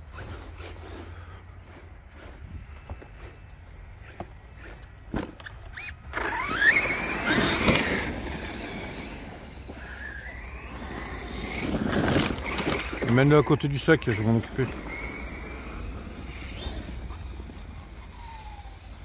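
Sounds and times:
tyre and drivetrain noise: 0.0 - 19.0
electric motor whining: 5.7 - 19.0.

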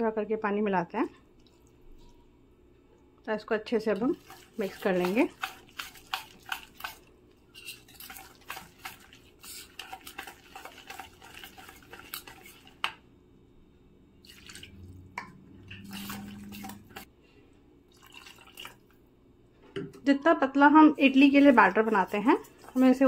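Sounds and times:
spoon stirring batter in a bowl: 3.8 - 13.0, 14.4 - 17.1, 20.9 - 23.0.

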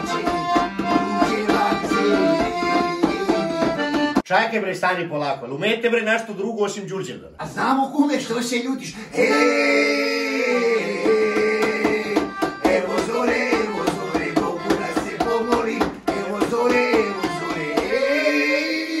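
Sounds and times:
men singing: 0.0 - 3.8, 9.1 - 19.0
piano accordion playing: 0.0 - 4.3, 9.2 - 19.0.

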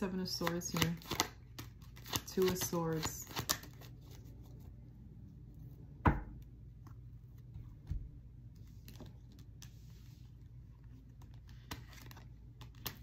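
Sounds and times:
cards clicking and sliding: 0.2 - 4.3, 11.0 - 13.0
knock on table: 6.0 - 6.4.

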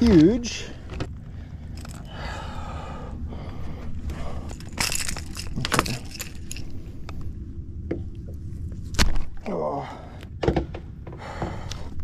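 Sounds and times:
steady low rumble: 0.0 - 12.0
crackly handling rustling: 4.0 - 7.3.

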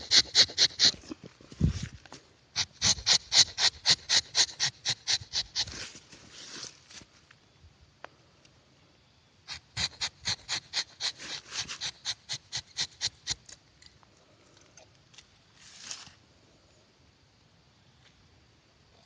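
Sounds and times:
knife scraping tree bark: 0.0 - 1.2, 2.6 - 6.0, 9.5 - 13.6.

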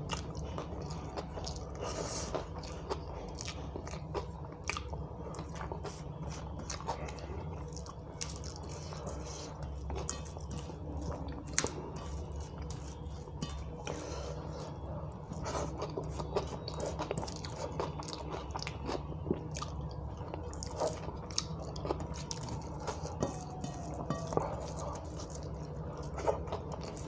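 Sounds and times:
man chewing food: 0.0 - 27.0
steady low hum: 0.0 - 27.0
fingers mixing food on steel plate: 5.7 - 19.0, 19.8 - 27.0.

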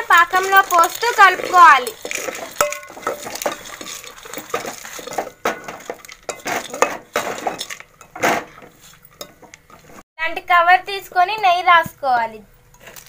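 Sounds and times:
spoon scraping metal pot: 0.0 - 10.0.

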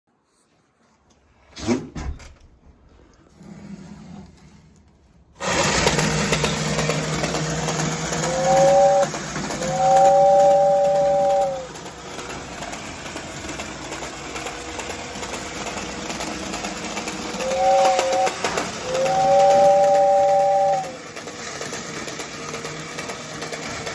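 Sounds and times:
toy train motor hum: 5.4 - 23.9
two-note toy train whistle: 7.9 - 11.8, 17.3 - 21.1.

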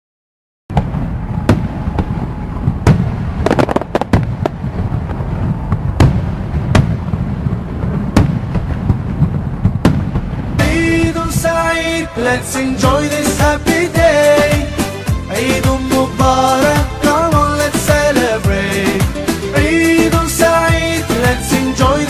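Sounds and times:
crackling firework reports: 0.7 - 13.2
sharp firework bangs: 0.7 - 14.6
fireworks rumbling and bursting: 0.7 - 22.0.

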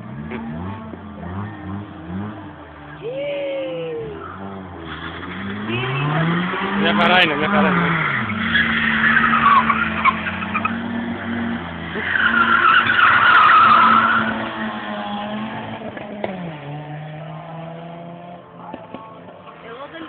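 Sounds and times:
car engine: 0.0 - 20.0
tyres squealing: 11.9 - 14.6.

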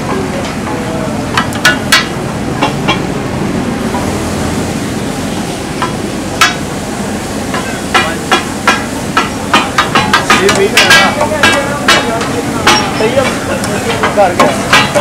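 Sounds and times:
sharp knocks: 7.6 - 15.0.

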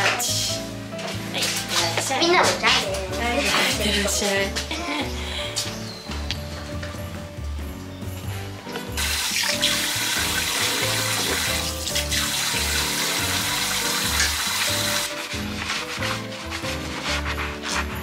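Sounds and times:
kitchen tap running into sink: 9.0 - 15.2
sponge washing a dish: 9.0 - 18.0.

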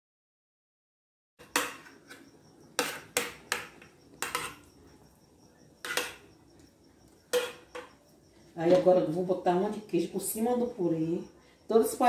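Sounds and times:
utensil tapping metal pan: 1.4 - 2.2, 2.8 - 4.7, 5.8 - 6.3, 7.3 - 8.0
utensil scraping metal pan: 2.8 - 4.7, 5.8 - 6.3, 7.3 - 7.9.

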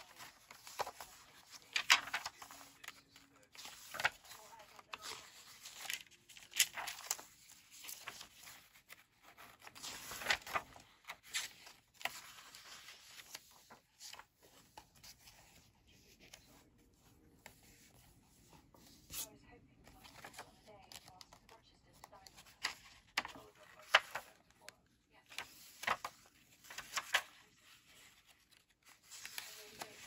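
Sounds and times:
paper pages rustling: 0.0 - 30.0.

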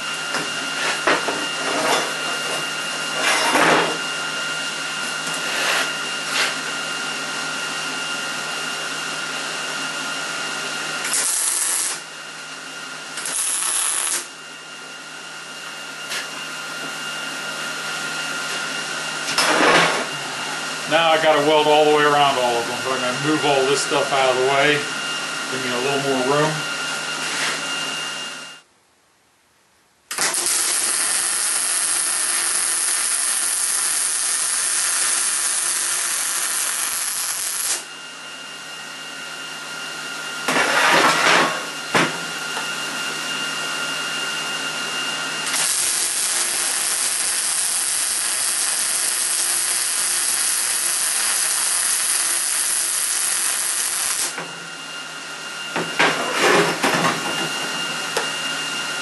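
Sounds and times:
welder hissing: 11.0 - 12.1, 13.2 - 14.3, 30.1 - 37.9, 45.4 - 54.4.

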